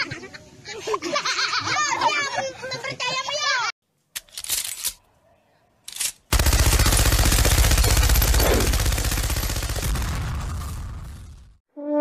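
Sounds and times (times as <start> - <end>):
automatic machine-gun fire: 6.3 - 11.4.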